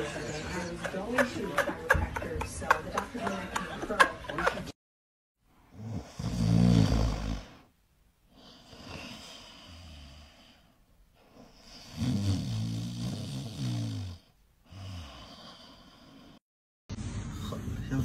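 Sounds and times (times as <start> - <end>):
dog snoring: 5.7 - 7.7, 8.3 - 10.7, 11.3 - 16.4.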